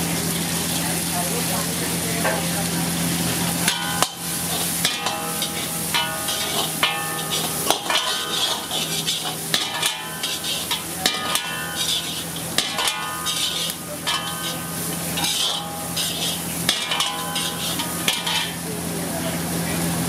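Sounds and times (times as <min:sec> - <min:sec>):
food sizzling in wok: 0:00.0 - 0:20.0
metal ladle knocking wok: 0:03.5 - 0:18.8.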